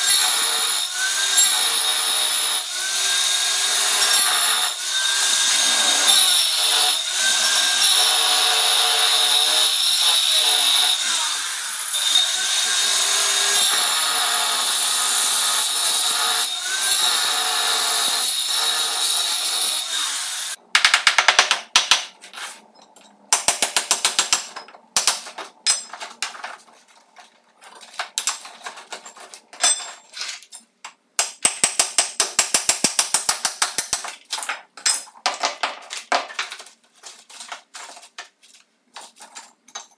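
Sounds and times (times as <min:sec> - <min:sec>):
angle grinder cutting screed: 0:00.0 - 0:20.6.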